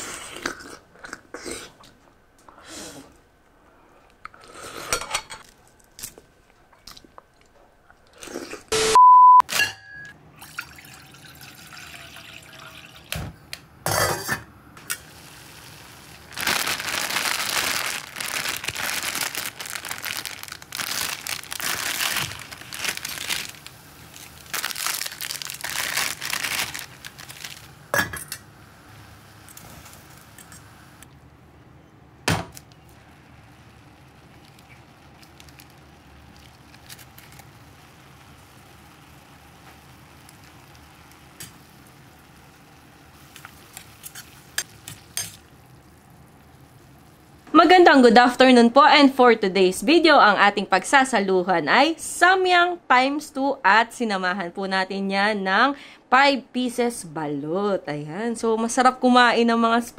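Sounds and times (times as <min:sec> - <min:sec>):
loud steady beep: 0:08.7 - 0:10.1.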